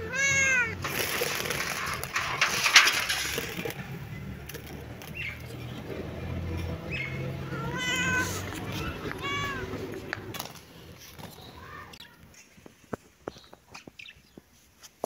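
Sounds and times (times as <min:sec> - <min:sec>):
kitten meowing: 0:00.0 - 0:00.8, 0:07.4 - 0:09.8.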